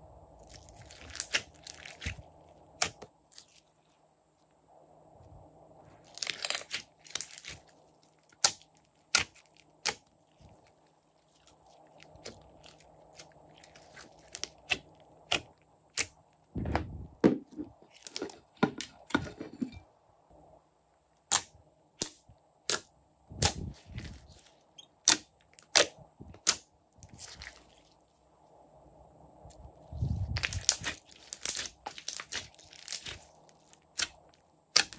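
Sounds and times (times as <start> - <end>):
slime wet squelches: 30.2 - 34.9.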